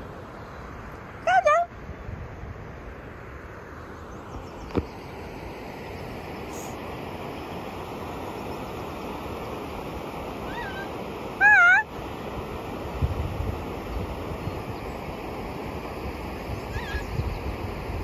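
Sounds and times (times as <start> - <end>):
wind: 0.0 - 18.0
river water rushing: 5.1 - 18.0
wavering high-pitched call: 10.4 - 11.9, 16.7 - 17.2.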